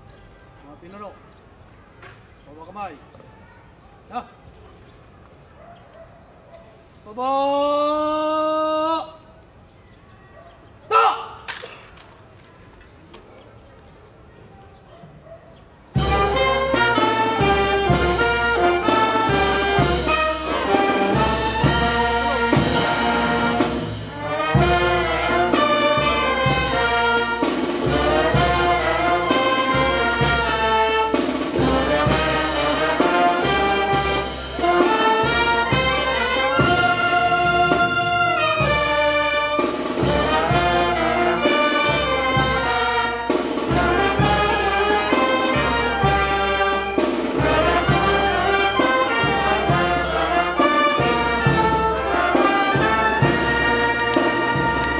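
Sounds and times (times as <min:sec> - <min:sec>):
brass band playing: 0:15.9 - 0:54.9.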